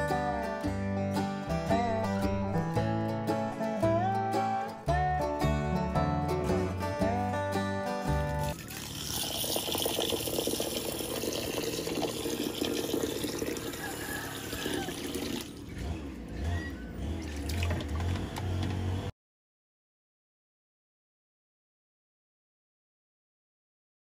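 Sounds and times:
water pouring into a glass bowl: 8.4s - 15.5s.

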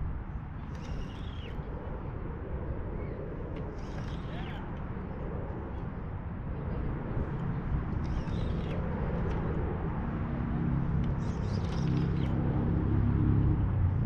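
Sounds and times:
wind rumble: 0.0s - 14.0s
bird calls: 0.7s - 1.6s.

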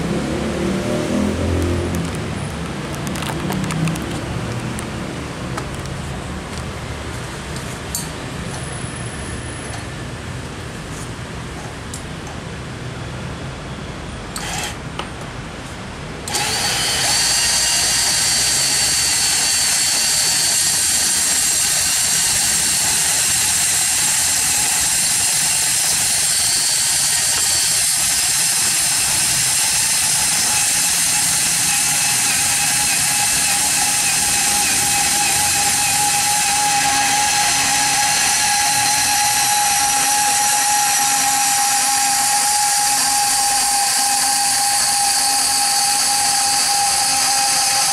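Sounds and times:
band saw cutting steel: 14.4s - 14.9s, 16.3s - 47.9s.

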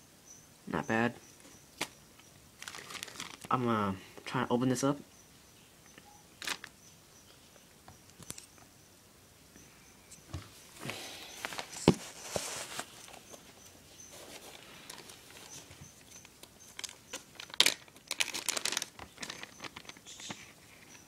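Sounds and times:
plastic bags crinkling: 2.6s - 3.6s, 6.4s - 6.7s, 14.2s - 20.2s.

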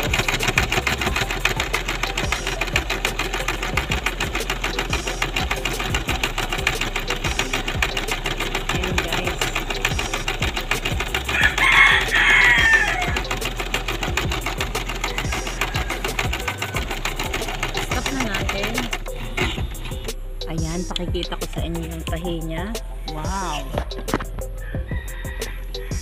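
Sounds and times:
sewing machine running: 0.0s - 20.1s
rooster crowing: 11.3s - 13.4s, 15.1s - 17.2s, 24.6s - 26.0s.

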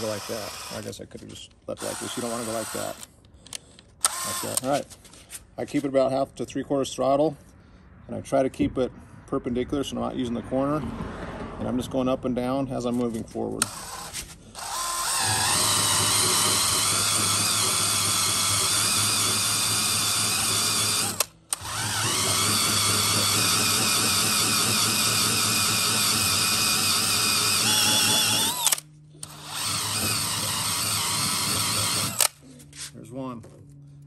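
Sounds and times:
cordless drill spinning eraser wheel: 0.0s - 1.0s, 1.8s - 3.1s, 4.0s - 4.8s, 13.6s - 32.8s.

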